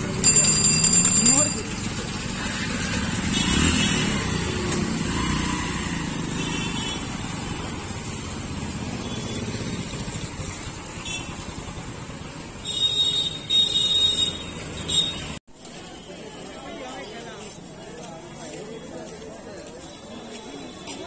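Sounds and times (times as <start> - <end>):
motorcycle engines passing: 0.0 - 15.4.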